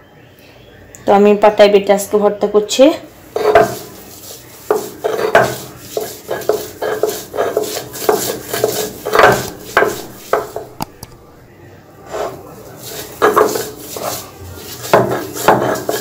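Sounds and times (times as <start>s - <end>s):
stone roller grinding on stone: 3.3s - 11.4s, 12.1s - 16.0s.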